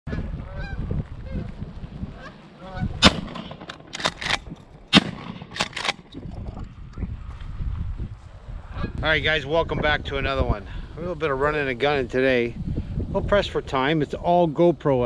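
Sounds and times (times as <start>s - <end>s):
geese honking: 0.1s - 1.5s, 2.1s - 3.6s
shotgun blasts: 3.0s - 6.2s
shotgun pump clacks: 3.0s - 6.3s.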